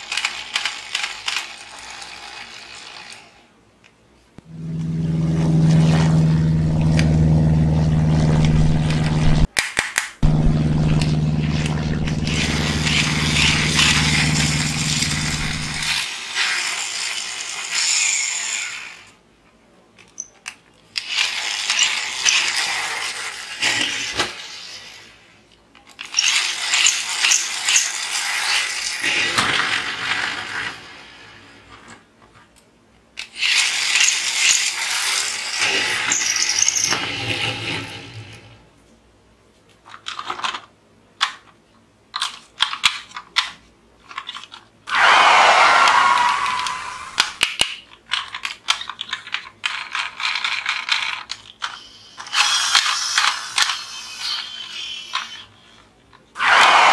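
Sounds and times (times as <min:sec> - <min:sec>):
toy car wheels whirring: 0:00.0 - 0:03.5, 0:10.9 - 0:19.2, 0:20.5 - 0:31.9, 0:33.2 - 0:38.4, 0:42.2 - 0:56.9
low steady hum: 0:04.4 - 0:09.5, 0:10.2 - 0:16.0.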